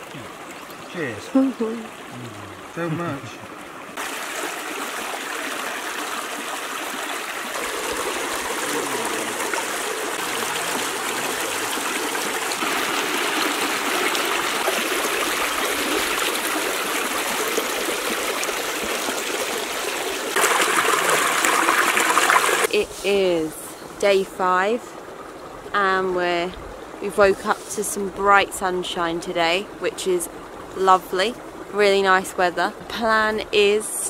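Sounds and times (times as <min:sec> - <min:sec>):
stream splashing over rocks: 0:00.0 - 0:22.7.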